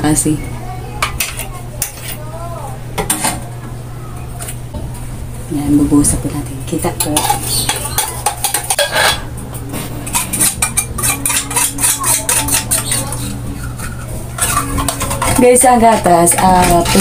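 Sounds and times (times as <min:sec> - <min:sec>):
metal spoon scraping a tin can: 0:07.0 - 0:09.3, 0:10.0 - 0:17.0.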